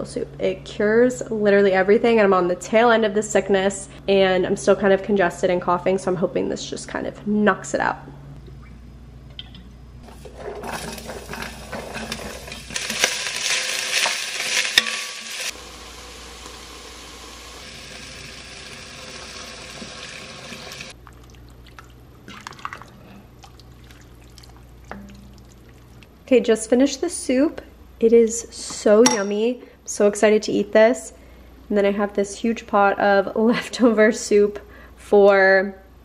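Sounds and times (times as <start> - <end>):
stirring knocks and scrapes on pot: 10.0 - 13.1
vegetables sizzling in oil: 10.0 - 21.0.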